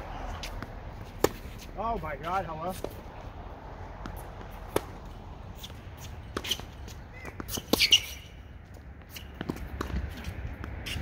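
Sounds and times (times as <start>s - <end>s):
tennis balls hit and bouncing: 0.0s - 11.0s
shoe squeak: 5.6s - 8.5s, 9.1s - 9.6s, 10.2s - 11.0s.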